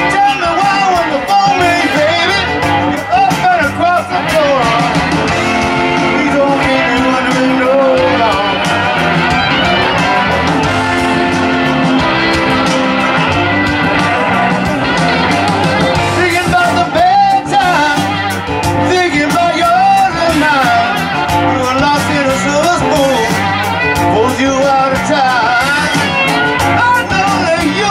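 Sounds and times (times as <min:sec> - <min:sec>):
drum kit beat: 0:00.0 - 0:27.9
electric bass: 0:00.0 - 0:27.9
electric guitars: 0:00.0 - 0:27.9.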